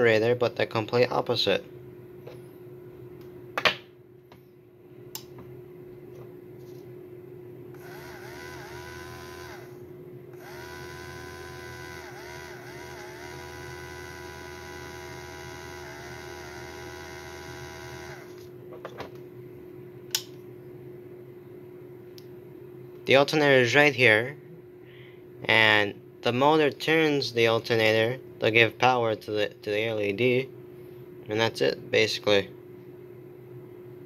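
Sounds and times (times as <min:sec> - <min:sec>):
low steady hum: 0:00.0 - 0:34.0
click: 0:05.1 - 0:05.3
small motor whirring whine: 0:07.7 - 0:18.6.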